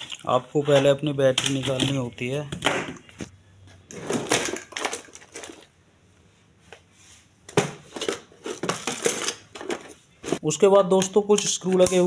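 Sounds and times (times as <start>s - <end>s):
plastic scraping and rustling: 0.0s - 5.7s, 7.7s - 10.4s.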